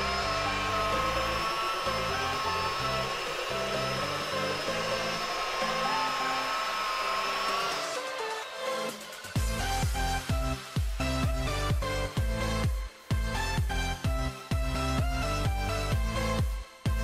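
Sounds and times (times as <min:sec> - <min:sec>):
electric polisher whine: 0:00.0 - 0:12.6
electronic background music: 0:00.0 - 0:17.0.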